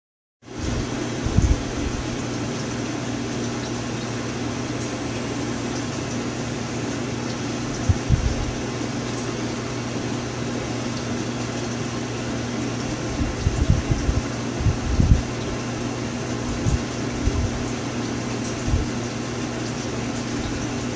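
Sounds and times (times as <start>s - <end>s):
machine hum with high whine: 0.4s - 20.9s
dull low thumps: 7.8s - 8.5s, 13.2s - 15.3s.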